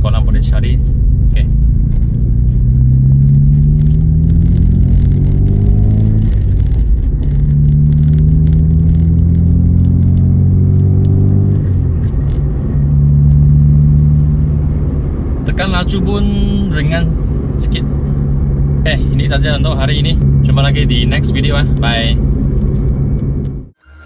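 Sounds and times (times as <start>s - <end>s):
car engine running: 0.0s - 23.8s
road and tyre noise: 0.0s - 24.0s.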